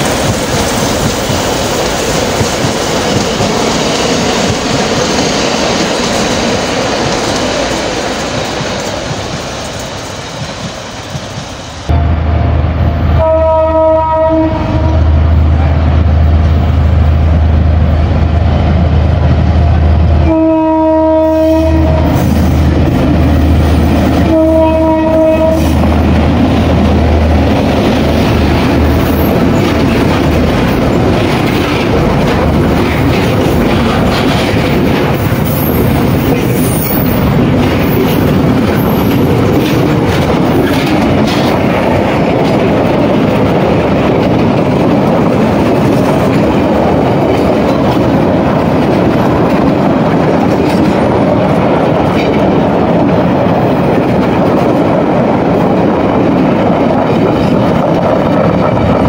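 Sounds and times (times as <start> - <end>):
train wheels on rails: 0.0 - 59.0
train horn: 13.2 - 15.2, 20.2 - 22.2, 24.2 - 25.9.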